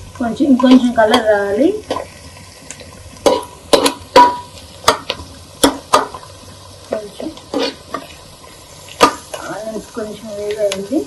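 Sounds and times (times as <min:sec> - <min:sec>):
onions sizzling: 0:00.0 - 0:11.0
spoon scraping a pot: 0:07.4 - 0:09.5.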